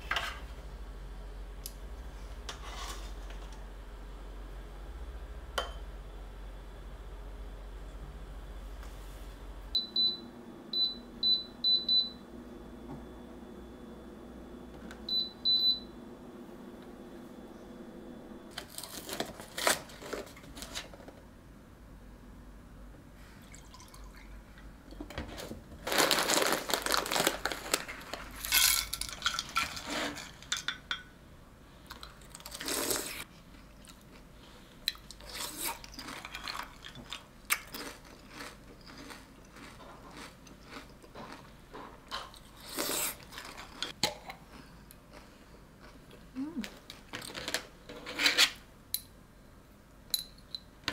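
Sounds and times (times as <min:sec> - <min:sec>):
food rustling: 0:18.5 - 0:21.1, 0:25.3 - 0:30.5
glass clinks: 0:50.1 - 0:50.7.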